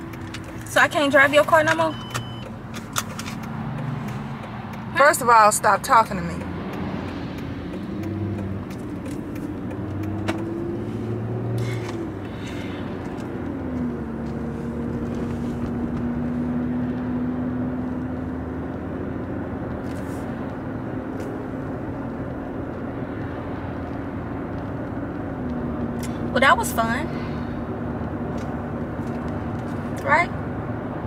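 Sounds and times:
car engine inside cabin: 0:00.0 - 0:31.0
road noise: 0:00.0 - 0:31.0.

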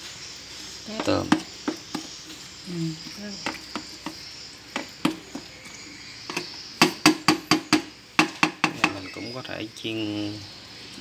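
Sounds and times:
metal spoon stirring batter: 0:01.0 - 0:02.4.

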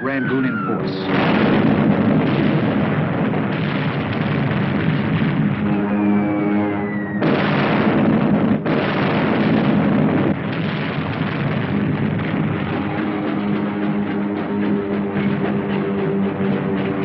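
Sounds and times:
heavy explosions: 0:00.0 - 0:17.0
falling bomb whistle: 0:05.6 - 0:07.6
held musical notes: 0:12.6 - 0:17.0.

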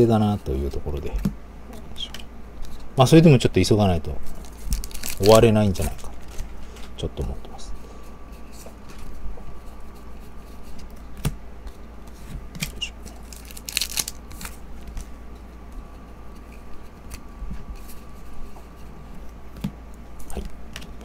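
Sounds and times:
trading cards rustling: 0:04.3 - 0:07.0, 0:11.6 - 0:15.1
wrapper ripping: 0:04.4 - 0:06.4, 0:13.1 - 0:14.6.

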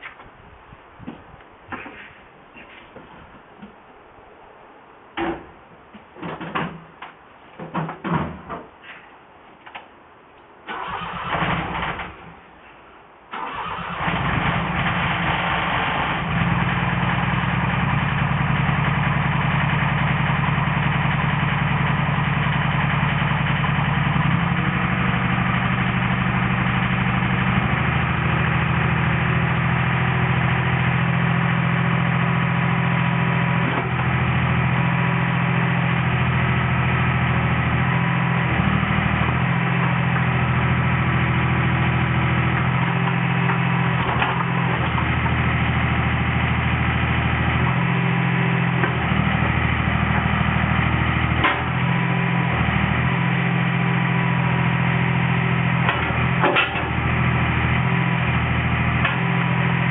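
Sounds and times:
excavator diesel engine idling: 0:13.4 - 0:59.9.

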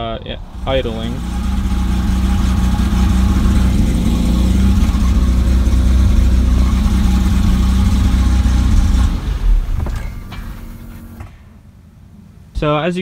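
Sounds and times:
car engine idling roughly and stalling: 0:00.4 - 0:11.6
dull thump: 0:06.6 - 0:11.5.

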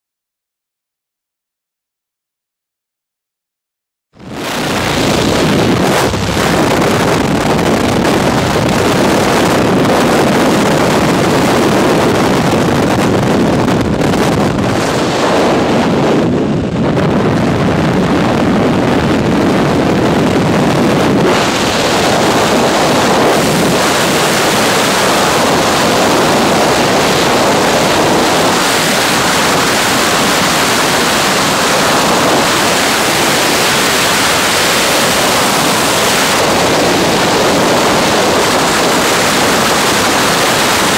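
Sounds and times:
freefall wind buffeting microphone: 0:04.2 - 0:40.9.

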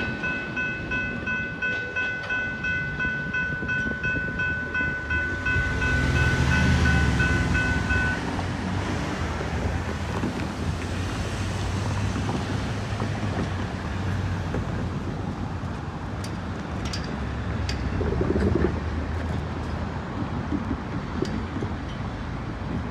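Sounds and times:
railroad crossing bell ringing: 0:00.0 - 0:08.4
freight train rumbling: 0:00.0 - 0:22.9.

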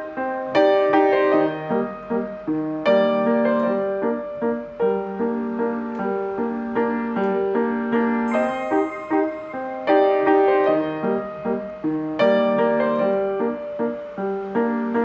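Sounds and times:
calm piano music: 0:00.0 - 0:15.0
high chime: 0:08.3 - 0:11.3.

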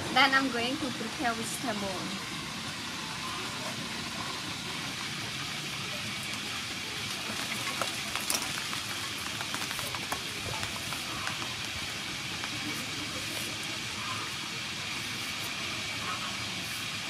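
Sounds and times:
outdoor hiss: 0:00.0 - 0:17.0.

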